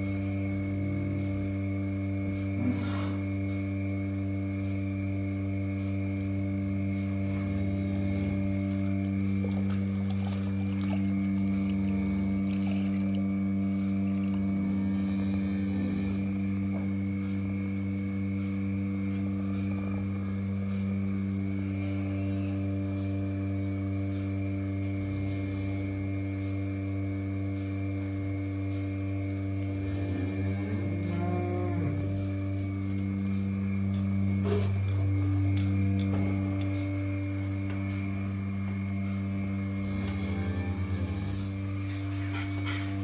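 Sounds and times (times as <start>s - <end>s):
vacuum pump humming: 0.0s - 43.0s
cow mooing: 29.8s - 32.2s, 39.8s - 41.6s.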